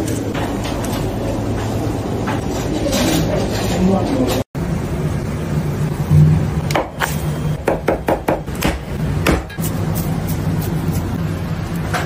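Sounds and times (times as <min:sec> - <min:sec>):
knife chopping on wooden board: 0:07.6 - 0:09.6.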